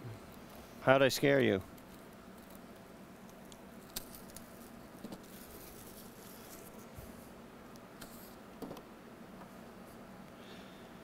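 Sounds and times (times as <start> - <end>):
plastic wrap crinkling: 3.8 - 6.9.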